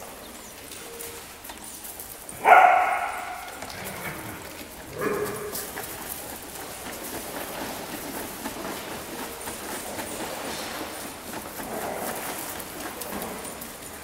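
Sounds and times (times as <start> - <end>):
dog calling: 2.4 - 4.1.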